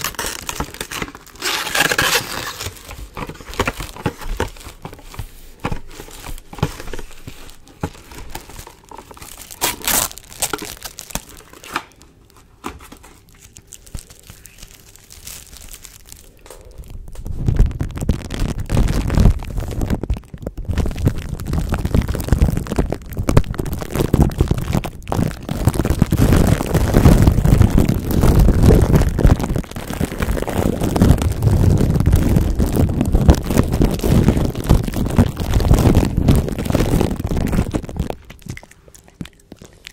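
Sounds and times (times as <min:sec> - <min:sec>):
plastic wrap crinkling: 0:00.0 - 0:39.9
plastic rubbing on microphone: 0:16.9 - 0:38.6.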